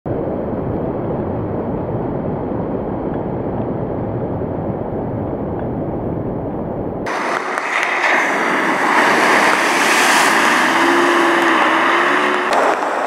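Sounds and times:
floodwater rushing: 7.1s - 13.0s.

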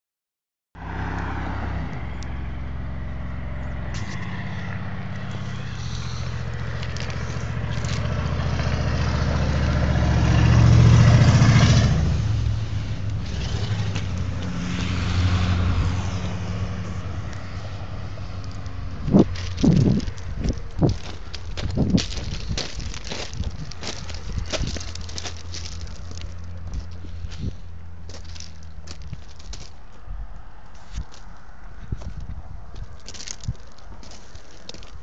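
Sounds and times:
diesel locomotive engines droning: 1.1s - 35.0s.

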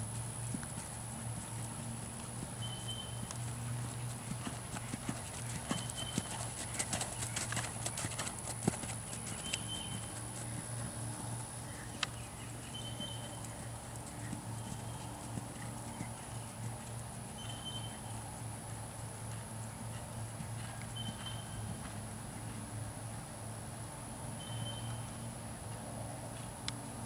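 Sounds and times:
horse hoofbeats on sand: 0.0s - 11.0s, 12.7s - 18.0s
steady low hum: 0.0s - 27.0s.

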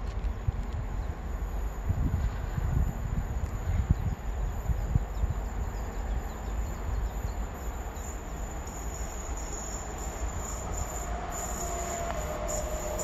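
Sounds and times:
train rumble: 0.0s - 13.0s
thin steady whine: 1.0s - 13.0s.

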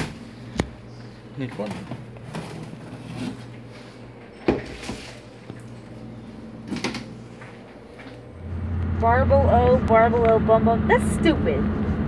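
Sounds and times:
items knocking and clattering: 1.4s - 3.5s.

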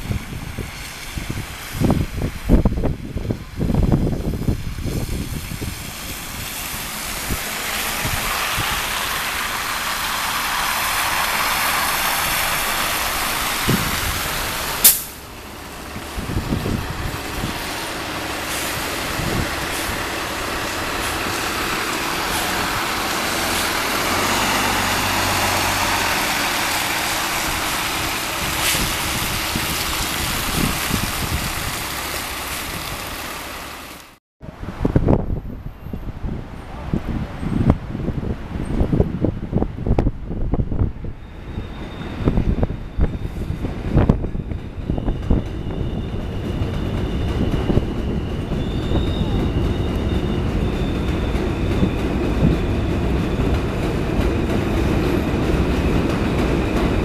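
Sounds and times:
tyres on wet slushy pavement: 0.0s - 41.1s
bus engine: 0.0s - 57.0s
air brakes hissing: 10.7s - 15.3s, 17.5s - 29.4s.

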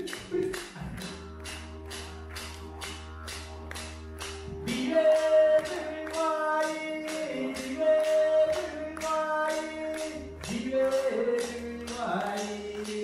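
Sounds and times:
clapsticks beat: 0.0s - 13.0s
person singing long notes: 4.5s - 13.0s.

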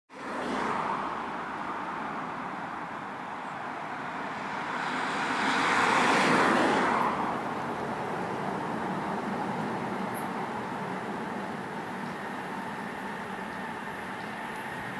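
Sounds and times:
passing vehicle rushing: 3.7s - 11.4s.

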